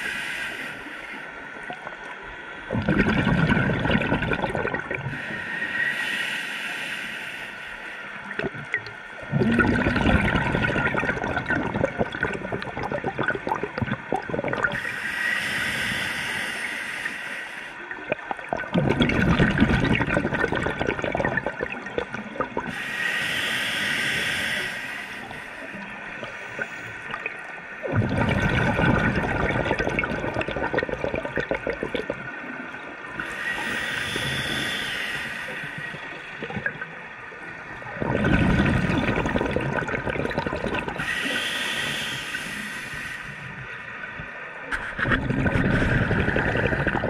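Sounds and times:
regulator inhale hiss: 0:00.0 - 0:01.4, 0:05.1 - 0:08.3, 0:14.8 - 0:18.0, 0:22.7 - 0:27.1, 0:33.2 - 0:36.4, 0:41.0 - 0:43.8
exhaled bubbles gurgling: 0:02.7 - 0:05.3, 0:08.3 - 0:15.0, 0:17.9 - 0:22.9, 0:25.4 - 0:42.5, 0:44.2 - 0:47.0.

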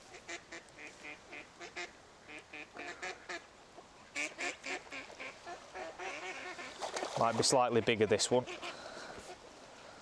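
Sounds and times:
ducks quacking: 0:00.1 - 0:03.5, 0:04.1 - 0:07.2, 0:08.3 - 0:09.4.

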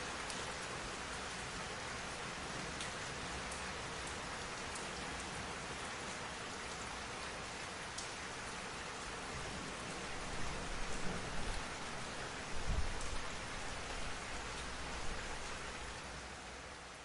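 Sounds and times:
steady rain: 0:00.0 - 0:17.0
low rumble of thunder: 0:09.4 - 0:13.3.

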